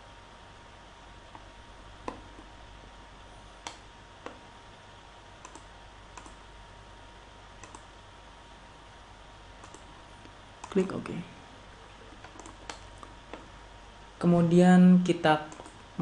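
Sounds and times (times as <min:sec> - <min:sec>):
steady low hiss: 0:00.0 - 0:16.0
computer mouse clicking: 0:02.0 - 0:02.5, 0:03.6 - 0:04.4, 0:05.4 - 0:06.4, 0:07.6 - 0:07.9, 0:09.6 - 0:09.9, 0:10.6 - 0:10.9, 0:12.1 - 0:13.5, 0:15.5 - 0:15.8.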